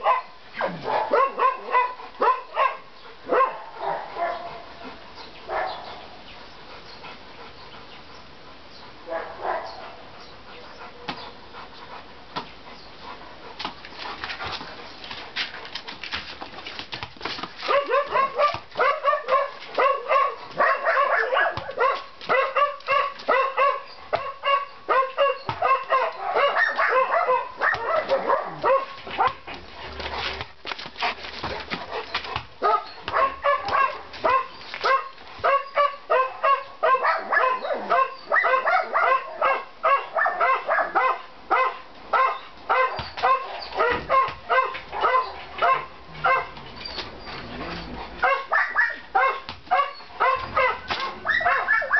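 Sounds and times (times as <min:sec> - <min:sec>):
dog barking: 0:00.0 - 0:04.6, 0:05.5 - 0:05.9, 0:09.1 - 0:09.8, 0:17.7 - 0:29.4, 0:32.6 - 0:46.6, 0:48.2 - 0:51.9.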